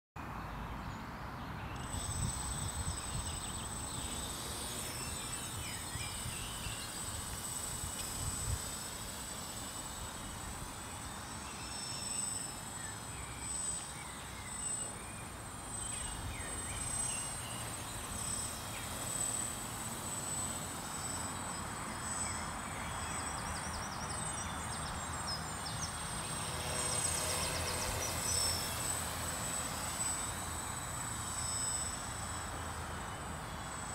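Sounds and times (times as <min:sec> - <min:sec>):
birds chirping: 0:00.8 - 0:33.9
quadcopter high-pitched whine: 0:01.6 - 0:33.9
wind on microphone: 0:01.8 - 0:03.7.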